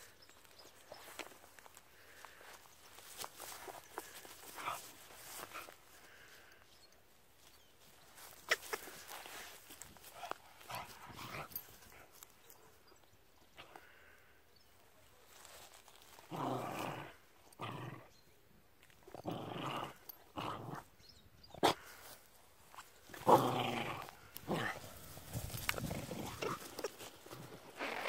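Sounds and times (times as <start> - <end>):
dog growling: 23.1 - 28.0.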